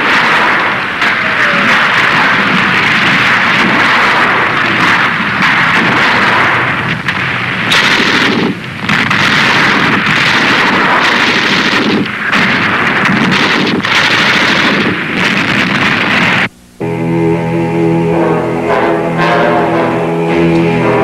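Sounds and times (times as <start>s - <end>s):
explosions: 0.0s - 16.5s
gunfire: 0.0s - 16.6s.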